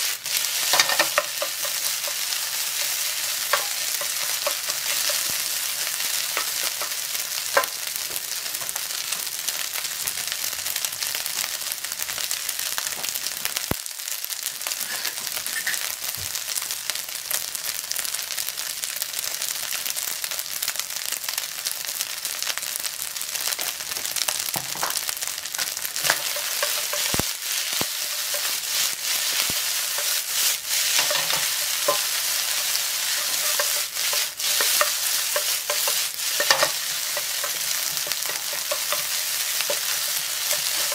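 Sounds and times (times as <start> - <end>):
rice sizzling in a frying pan: 0.0 - 40.9.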